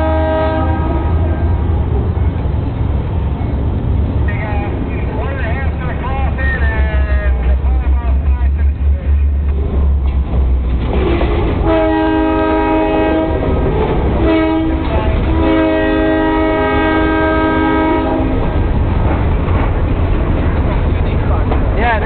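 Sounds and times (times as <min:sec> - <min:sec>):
locomotive air horn chord: 0:00.0 - 0:01.6, 0:11.6 - 0:13.4, 0:14.2 - 0:18.4
locomotive low rumble: 0:00.0 - 0:22.0.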